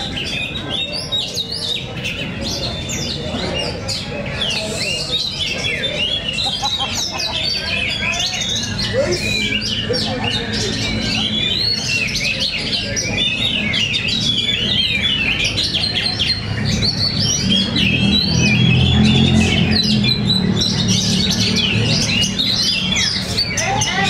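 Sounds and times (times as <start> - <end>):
songbirds singing: 0.0 - 24.0.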